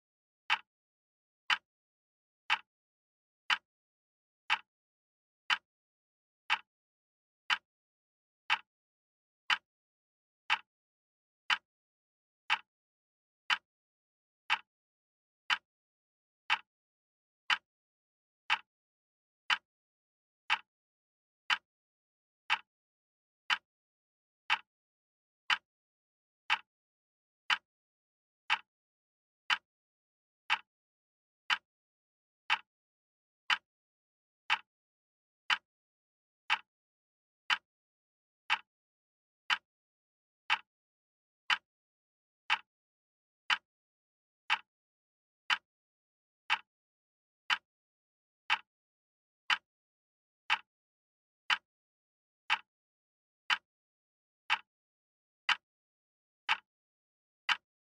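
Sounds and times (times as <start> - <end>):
wall clock ticking: 0.5 - 0.7, 2.5 - 2.7, 3.5 - 3.7, 4.5 - 4.7, 5.5 - 5.7, 6.5 - 6.7, 7.5 - 7.7, 8.5 - 8.7, 9.5 - 9.7, 10.5 - 10.7, 11.5 - 11.7, 12.5 - 12.7, 13.5 - 13.7, 14.5 - 14.7, 15.5 - 15.7, 16.5 - 16.7, 17.5 - 17.7, 18.5 - 18.7, 19.5 - 19.7, 20.5 - 20.7, 21.5 - 21.7, 22.5 - 22.7, 23.5 - 23.7, 24.5 - 24.7, 25.5 - 25.7, 26.5 - 26.7, 27.5 - 27.7, 28.5 - 28.7, 29.5 - 29.7, 30.5 - 30.7, 31.5 - 31.7, 32.5 - 32.7, 33.5 - 33.7, 34.5 - 34.7, 35.5 - 35.7, 36.5 - 36.7, 37.5 - 37.7, 38.5 - 38.7, 39.5 - 39.7, 40.5 - 40.7, 41.5 - 41.7, 42.5 - 42.7, 43.5 - 43.7, 44.5 - 44.7, 45.5 - 45.7, 46.5 - 46.7, 47.5 - 47.7, 48.5 - 48.7, 49.5 - 49.7, 50.5 - 50.7, 51.5 - 51.7, 52.5 - 52.7, 53.5 - 53.7, 54.5 - 54.7, 56.5 - 56.7, 57.5 - 58.0.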